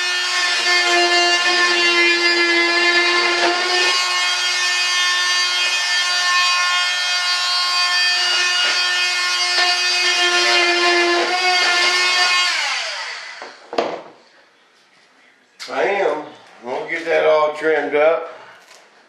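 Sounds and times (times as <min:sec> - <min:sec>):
power cutter whining: 0:00.0 - 0:13.6.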